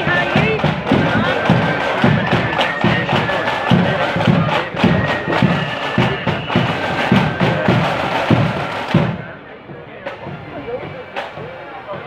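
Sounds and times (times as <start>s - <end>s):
held high melody notes: 0.0s - 9.0s
bass drum beating: 0.0s - 12.0s.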